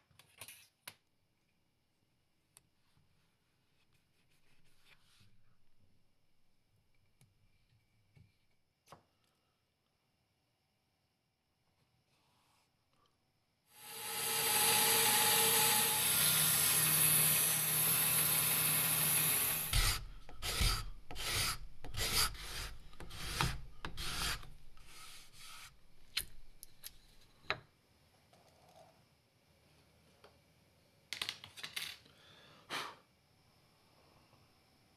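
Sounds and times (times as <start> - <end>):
power tool running: 13.8 - 20.0
scraping strokes on wood: 13.9 - 25.8.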